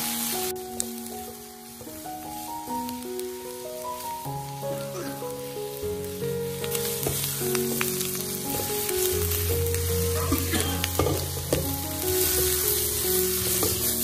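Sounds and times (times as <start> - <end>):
peppers sizzling in hot oil: 0.0 - 14.0
spatula scraping and tapping pan: 6.7 - 8.7, 10.3 - 12.8, 13.4 - 14.0.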